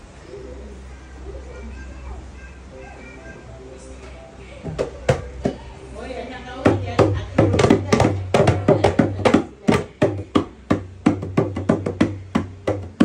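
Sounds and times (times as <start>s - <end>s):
drum strikes: 4.7s - 5.6s, 6.6s - 13.0s.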